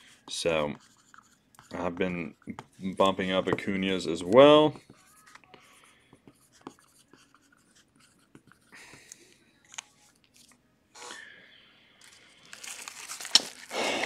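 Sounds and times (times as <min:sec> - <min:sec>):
marker scratching on plastic: 0:00.0 - 0:03.1, 0:04.7 - 0:08.7.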